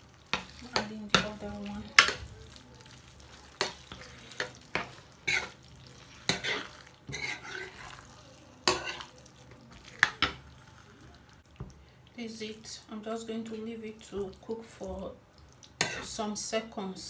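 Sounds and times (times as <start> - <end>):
faint sizzle from hot pan: 0.0 - 17.0
metal spoon scraping frying pan: 3.3 - 10.5.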